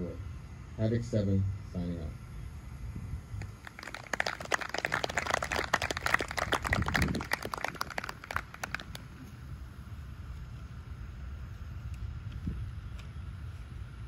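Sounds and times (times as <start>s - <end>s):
small audience applauding: 3.4s - 9.1s.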